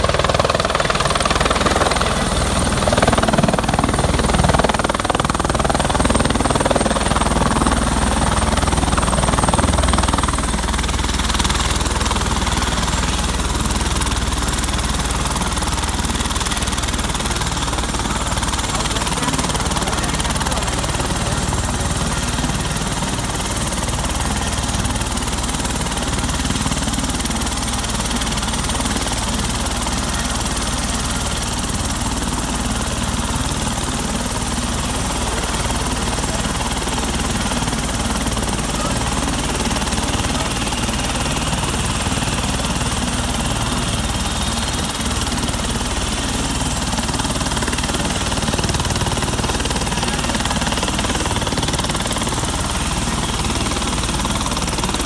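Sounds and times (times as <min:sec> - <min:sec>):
helicopter rotor and engine: 0:00.0 - 0:55.0.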